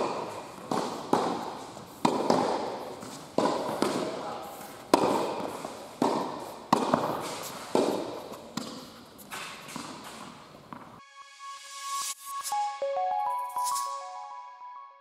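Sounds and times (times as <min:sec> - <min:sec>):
racket hitting tennis ball: 0:00.0 - 0:11.0
tennis ball bouncing on court: 0:00.0 - 0:11.0
music: 0:11.0 - 0:15.0.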